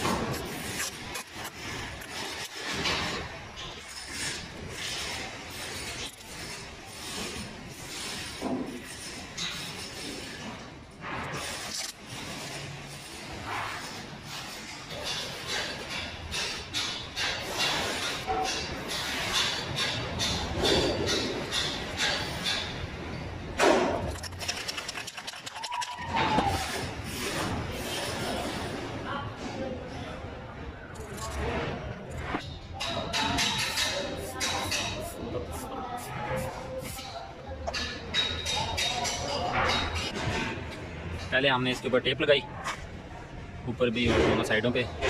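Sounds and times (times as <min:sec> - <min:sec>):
hands rubbing tape on concrete: 0:00.0 - 0:03.2, 0:03.8 - 0:10.4, 0:11.2 - 0:20.9, 0:23.8 - 0:28.7, 0:33.5 - 0:37.2
spray-paint can rattling: 0:24.0 - 0:26.1
hand rubbing tape flat: 0:24.1 - 0:27.9.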